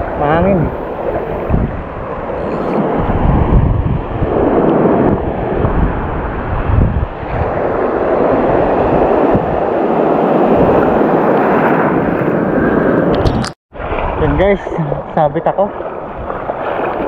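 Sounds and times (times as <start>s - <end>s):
surf washing in shallow water: 0.0s - 13.2s, 13.8s - 17.0s
wind buffeting microphone: 0.0s - 17.0s.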